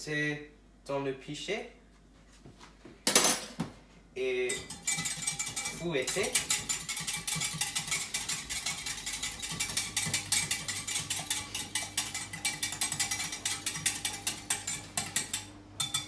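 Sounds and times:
eggs being whisked in glass jug: 0:04.4 - 0:16.0
whisk clicking against glass: 0:04.5 - 0:16.0.

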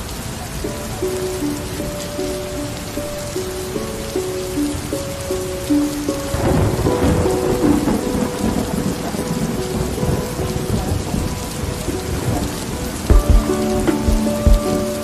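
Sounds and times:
soft music of held notes: 0:00.0 - 0:15.0
steady rain: 0:00.0 - 0:15.0
thunder rumbling: 0:03.1 - 0:15.0.

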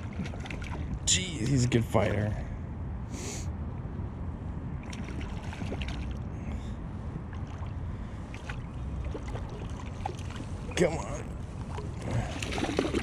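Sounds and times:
water lapping and splashing: 0:00.0 - 0:01.2, 0:04.8 - 0:13.0
wind rumble on microphone: 0:00.0 - 0:13.0.

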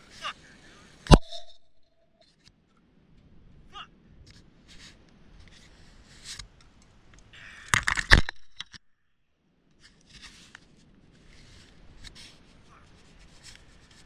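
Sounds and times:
gloves and gear rustling: 0:09.7 - 0:14.0.

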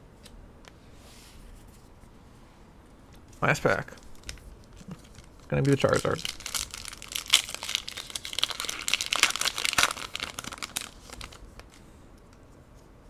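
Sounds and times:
plastic wrapper crinkling: 0:03.3 - 0:11.8.

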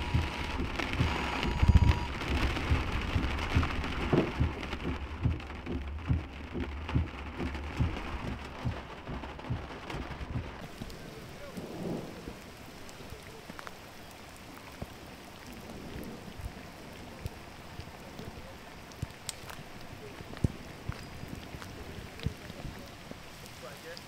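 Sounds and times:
low thumps: 0:00.0 - 0:12.5
heavy rain on vehicle roof: 0:00.0 - 0:24.0.

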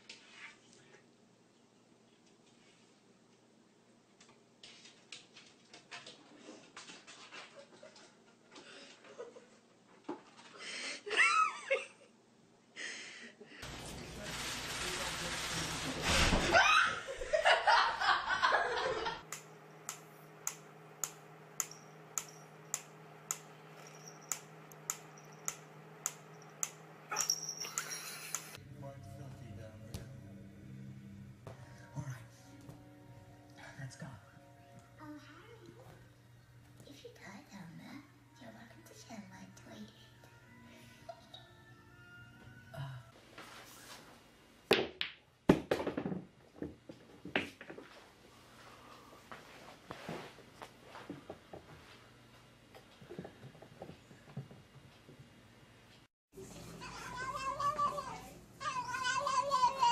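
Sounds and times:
mechanical metronome ticking: 0:19.2 - 0:27.0.

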